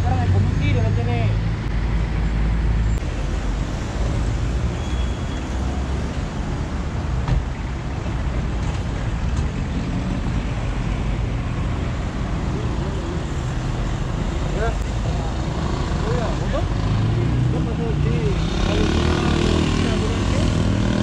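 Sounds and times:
street traffic rumble: 0:00.0 - 0:21.0.

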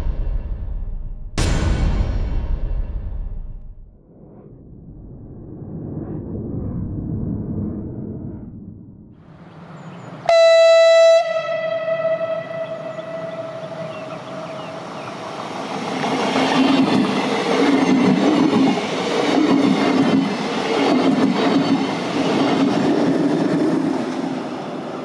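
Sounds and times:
train horn: 0:10.3 - 0:14.8
train wheels clattering on track: 0:14.6 - 0:24.4.

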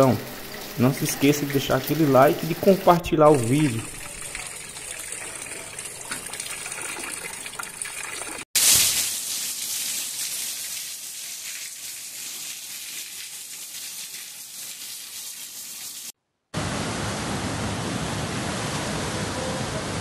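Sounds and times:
floodwater rushing: 0:00.0 - 0:10.6.

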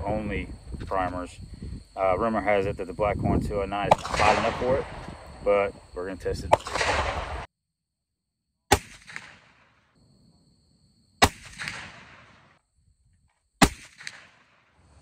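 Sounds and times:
rifle shots with echo: 0:03.9 - 0:05.0, 0:06.5 - 0:07.5, 0:08.7 - 0:09.7, 0:11.2 - 0:12.6, 0:13.6 - 0:14.6.

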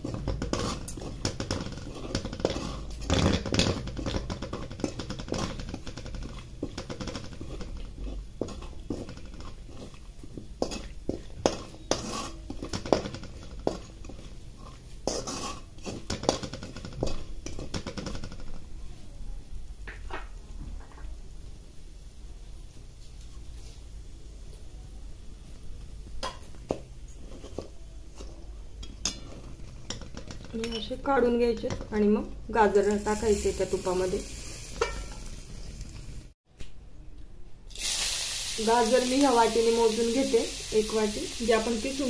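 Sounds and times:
metal spatula scraping a pan: 0:00.0 - 0:18.2, 0:27.1 - 0:31.8, 0:32.8 - 0:36.0
nuts frying in ghee: 0:00.0 - 0:18.8, 0:21.0 - 0:36.4, 0:37.7 - 0:42.0.

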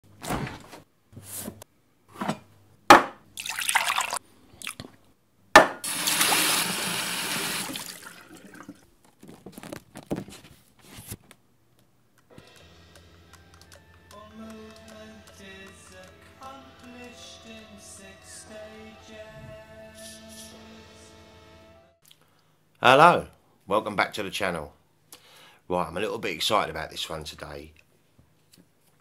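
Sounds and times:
faint music with held notes: 0:12.3 - 0:22.0.

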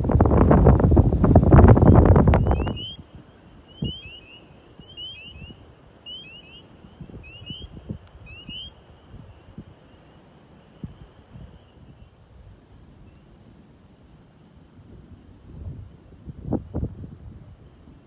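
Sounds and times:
wind buffeting microphone: 0:00.0 - 0:04.3, 0:06.8 - 0:09.8, 0:14.8 - 0:18.0
frogs chirping: 0:01.8 - 0:09.1
distant frogs trilling: 0:01.8 - 0:11.9.

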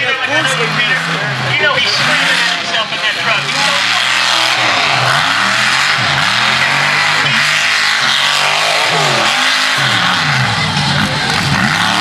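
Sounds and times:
truck engine revving hard: 0:00.0 - 0:12.0.

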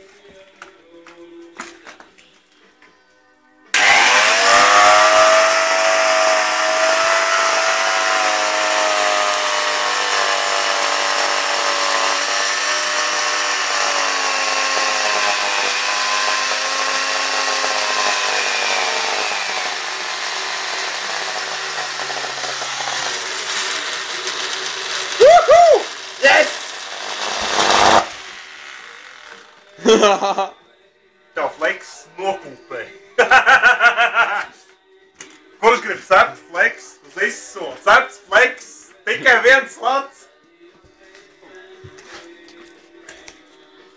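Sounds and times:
angle grinder whining: 0:03.7 - 0:29.8.

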